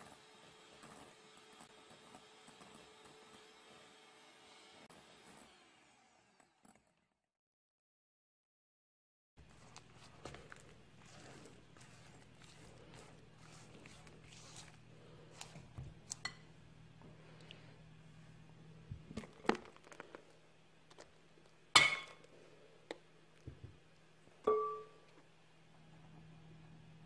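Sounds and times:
spatula tapping and scraping bowl: 0:09.4 - 0:16.6
glass clinking on glass: 0:21.8 - 0:22.2, 0:24.5 - 0:25.1
glass bowl ringing knock: 0:24.5 - 0:25.0.

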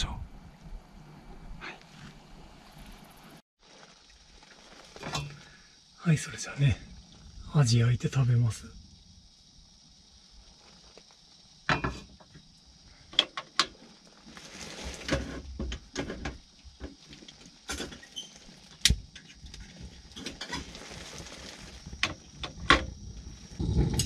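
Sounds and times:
soft rustling: 0:13.8 - 0:15.4, 0:19.6 - 0:22.0.

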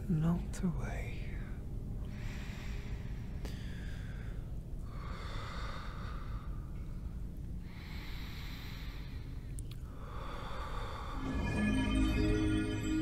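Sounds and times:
man breathing heavily: 0:02.0 - 0:11.3.

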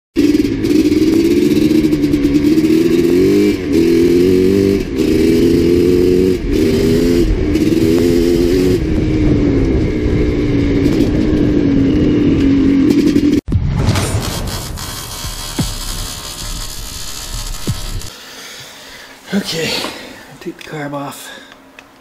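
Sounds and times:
dirt bike engine shifting gears: 0:00.2 - 0:13.4, 0:14.6 - 0:18.8.

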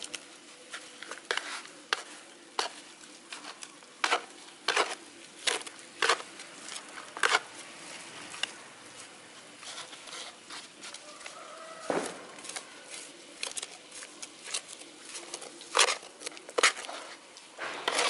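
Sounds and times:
hand scoop scraping potting soil: 0:00.0 - 0:18.0.

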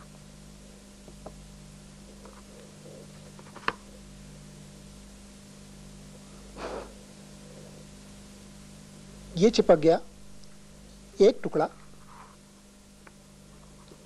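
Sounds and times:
low hum and hiss: 0:00.0 - 0:14.0.

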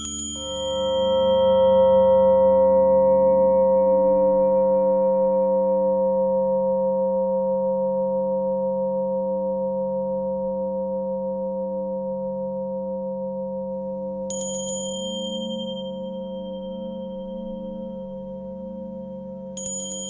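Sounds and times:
singing bowls ringing: 0:00.0 - 0:04.1, 0:14.3 - 0:20.0
small high-pitched bell: 0:00.0 - 0:05.7, 0:14.0 - 0:20.0.

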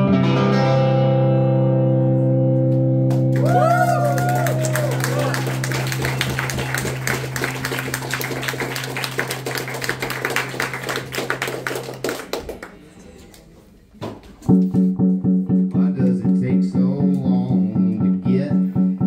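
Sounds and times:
guitar riff of repeated notes: 0:00.0 - 0:03.3, 0:14.5 - 0:19.0
held low bass note: 0:14.6 - 0:19.0.

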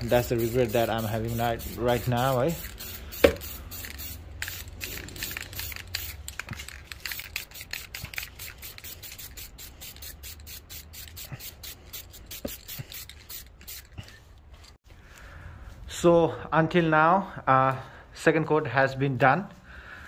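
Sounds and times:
spray paint can hissing: 0:00.0 - 0:14.2.

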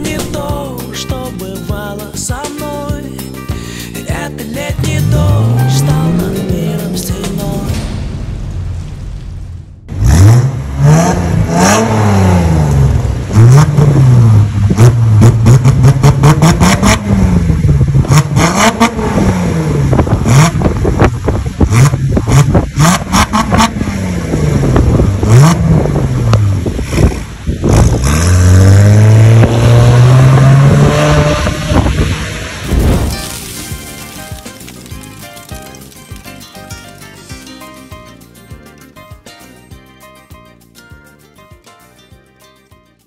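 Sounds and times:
car engine revving: 0:04.8 - 0:33.1
exhaust crackle: 0:04.8 - 0:37.9.

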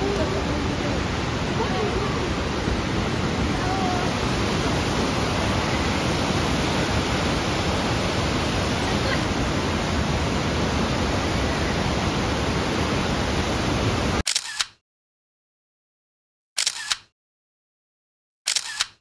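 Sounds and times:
waterfall rushing: 0:00.0 - 0:14.2
camera shutter click: 0:14.3 - 0:14.8, 0:16.6 - 0:17.1, 0:18.5 - 0:19.0.

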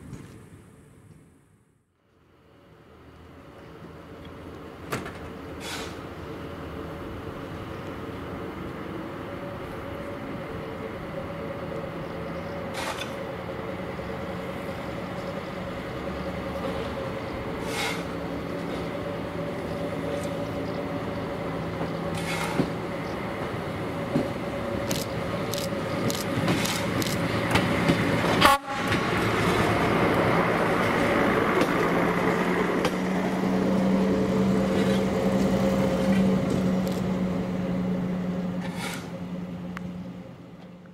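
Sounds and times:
diesel railbus passing: 0:02.0 - 0:40.9
sharp clicks: 0:24.8 - 0:27.2.

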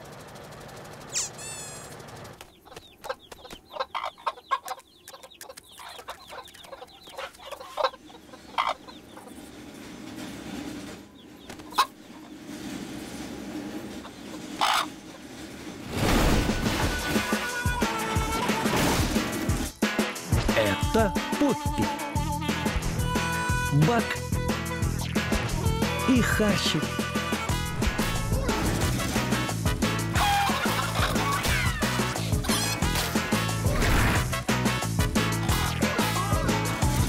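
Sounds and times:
chickens clucking: 0:00.9 - 0:15.8, 0:21.5 - 0:34.0, 0:34.7 - 0:37.0
upbeat cartoon music: 0:16.6 - 0:37.0.

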